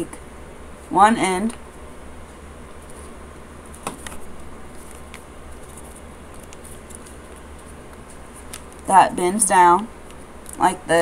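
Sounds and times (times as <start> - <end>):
low steady hum: 0.0 - 11.0
paper rustling and crackling: 2.7 - 8.9.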